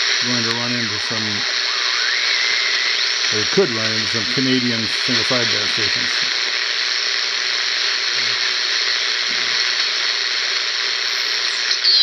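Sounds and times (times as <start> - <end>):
radio static hiss: 0.0 - 12.0
high whistle gliding down: 1.6 - 4.4.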